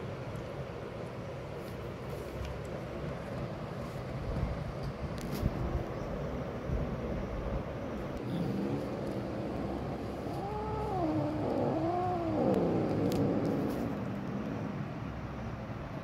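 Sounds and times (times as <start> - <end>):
low background rumble: 0.0 - 16.0
cat meowing: 10.0 - 14.4.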